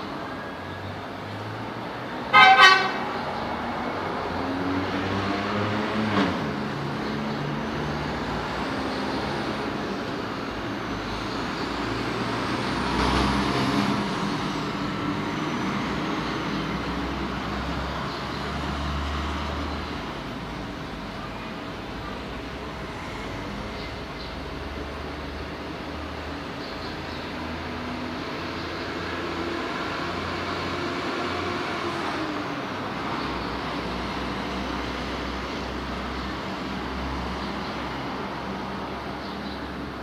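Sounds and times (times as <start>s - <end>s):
engines passing: 0.0s - 40.0s
vehicle horn toot: 2.3s - 3.0s.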